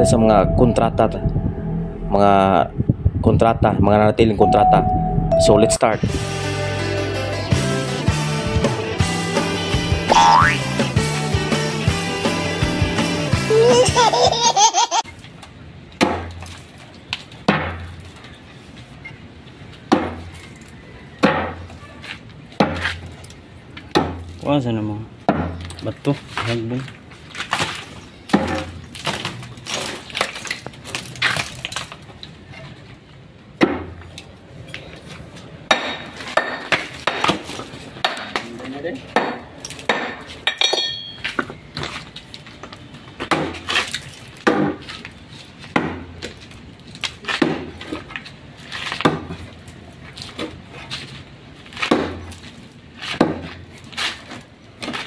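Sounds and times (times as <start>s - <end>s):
metal tools striking stone: 40.5s - 41.2s
short ringing clink: 40.6s - 41.2s.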